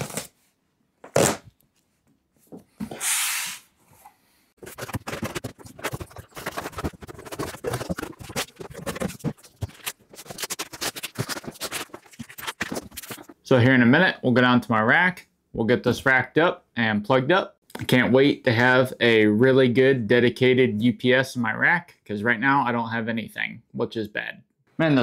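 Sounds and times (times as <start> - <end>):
cardboard tearing: 0.0 - 0.4, 1.0 - 1.5, 4.6 - 13.3
cardboard rustling and scraping: 4.6 - 13.4.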